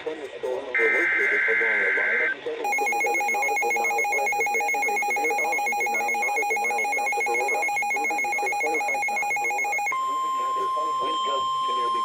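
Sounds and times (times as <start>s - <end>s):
warbling two-tone alarm beep: 0.8s - 12.0s.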